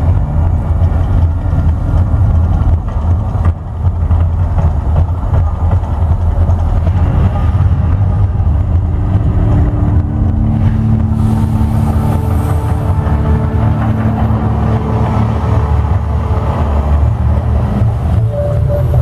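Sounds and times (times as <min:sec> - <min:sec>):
eruption effects booming over loudspeakers: 0:00.0 - 0:19.0
steady held tones: 0:05.3 - 0:19.0.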